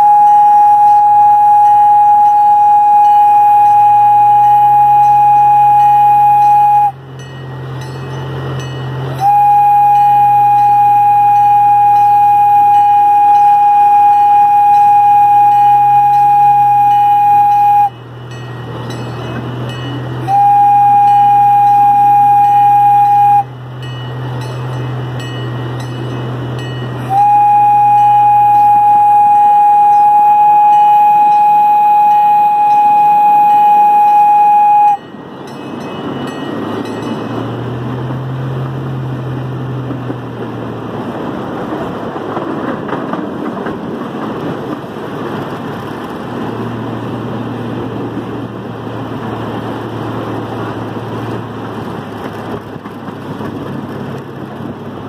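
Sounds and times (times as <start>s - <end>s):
miniature train horn blasts: 0.0s - 35.2s
train rumbling along track: 0.0s - 55.0s.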